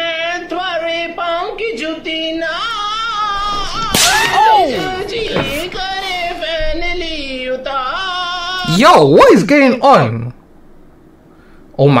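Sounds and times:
man singing a slow ballad: 0:04.7 - 0:08.7.

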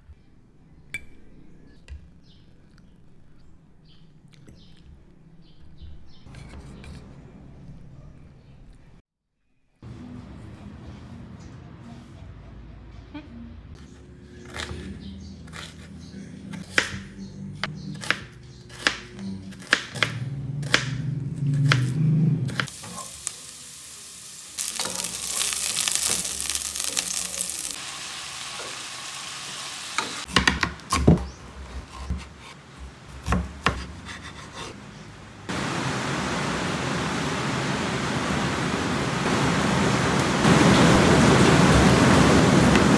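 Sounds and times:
onion sizzling in hot oil: 0:22.7 - 0:30.3
knife chopping on cutting board: 0:30.3 - 0:32.5, 0:33.1 - 0:34.8
heavy rain: 0:35.5 - 0:42.9.

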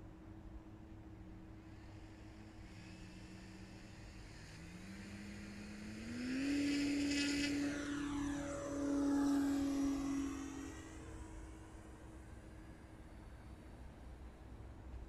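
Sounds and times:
model glider motor whine: 0:00.0 - 0:15.0.

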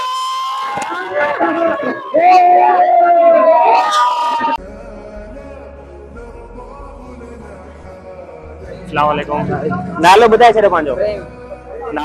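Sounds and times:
sung vocal music: 0:04.5 - 0:12.0
low steady hum: 0:08.6 - 0:11.7.

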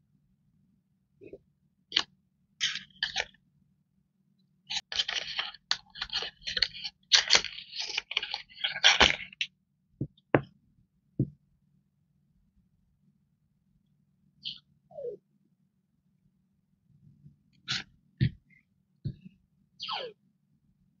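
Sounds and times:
packaging crinkling and rustling: 0:04.7 - 0:09.5.

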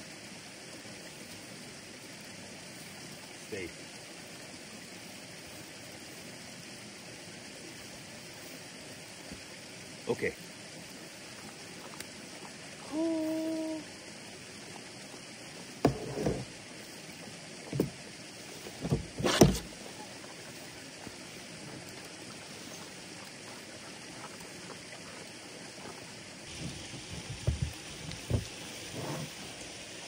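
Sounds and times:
outdoor hiss: 0:00.0 - 0:30.0
camp dishes knocking: 0:18.8 - 0:19.7.

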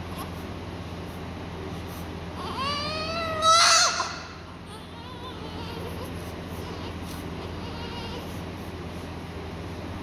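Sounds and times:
baby crying: 0:02.4 - 0:08.3
baby whimpering: 0:02.4 - 0:08.4.

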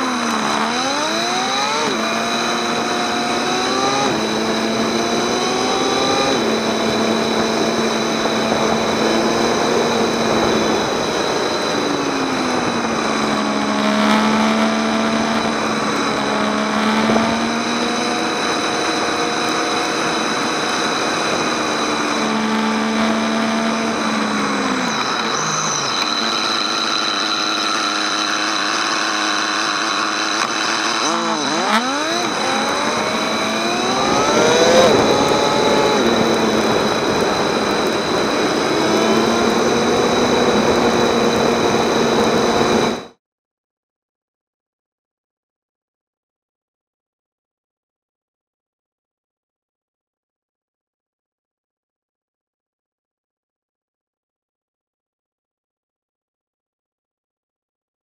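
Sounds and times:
motorcycle engine revving: 0:00.0 - 0:43.2
wind rush: 0:31.9 - 0:43.1.

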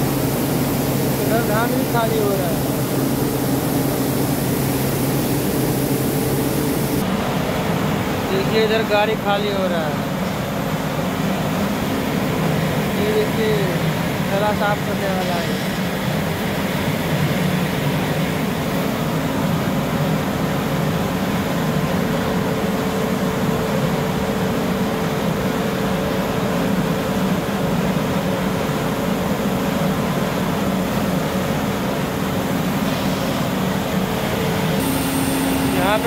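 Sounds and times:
rice mill machinery droning: 0:00.0 - 0:08.3, 0:26.5 - 0:36.0.

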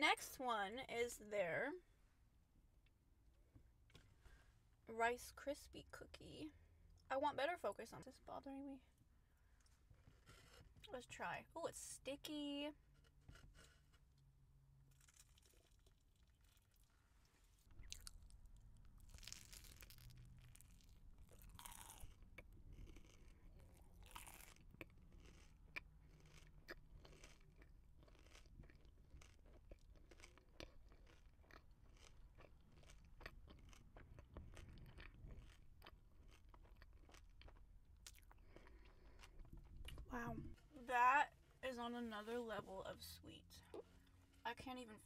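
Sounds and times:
mouth chewing crispy treat: 0:13.0 - 0:40.1.

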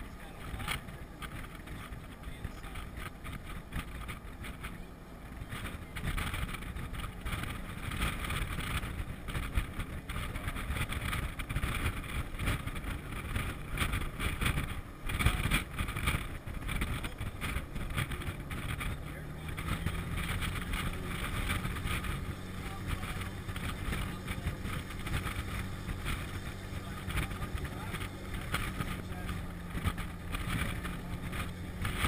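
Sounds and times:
engine and tyre rumble: 0:00.0 - 0:32.0
wind buffeting microphone: 0:00.0 - 0:32.0.

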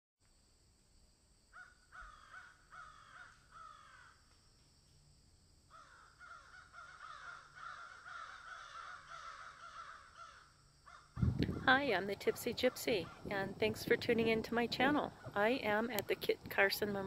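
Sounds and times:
crows cawing faintly: 0:01.5 - 0:04.4, 0:05.7 - 0:11.6, 0:12.2 - 0:13.3, 0:15.1 - 0:15.6.

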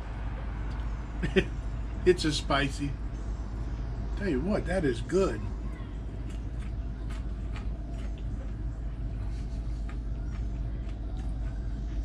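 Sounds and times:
low rumble: 0:00.0 - 0:12.0
man chewing crunchy food: 0:06.0 - 0:12.0.

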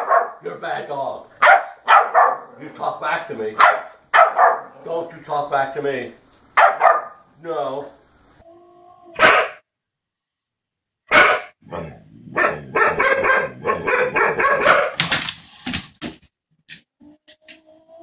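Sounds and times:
dog barking and growling: 0:00.0 - 0:00.6, 0:01.3 - 0:02.8, 0:03.5 - 0:05.1, 0:06.5 - 0:07.3, 0:08.8 - 0:09.6, 0:11.1 - 0:15.1.

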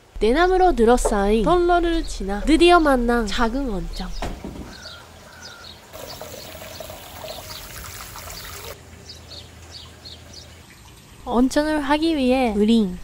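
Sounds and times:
water trickling into a bath: 0:05.9 - 0:11.3.

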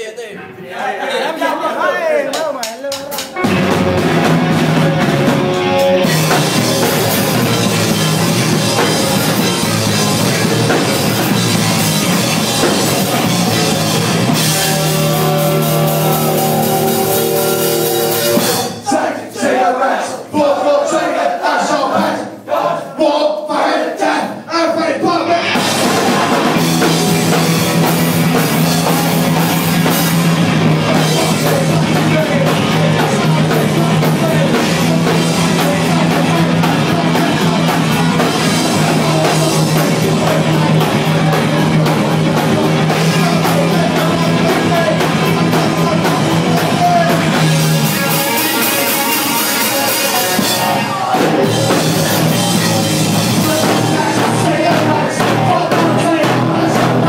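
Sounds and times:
punk band playing live: 0:02.8 - 0:19.6, 0:25.0 - 0:57.0
shouted vocals: 0:12.6 - 0:57.0.

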